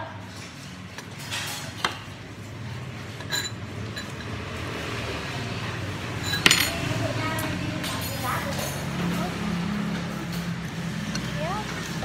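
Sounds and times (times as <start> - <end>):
metal spoon clinking on bowl: 6.2 - 6.9.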